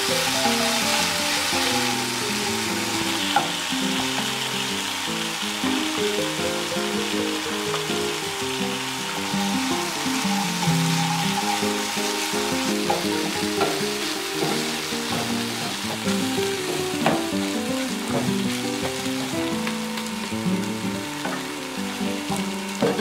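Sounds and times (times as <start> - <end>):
food sizzling in a frying pan: 0.0 - 23.0
soft background music: 9.0 - 23.0.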